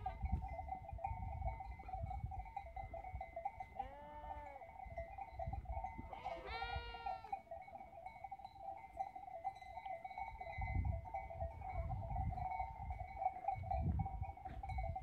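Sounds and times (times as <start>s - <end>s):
sheep bleating: 6.1s - 7.4s.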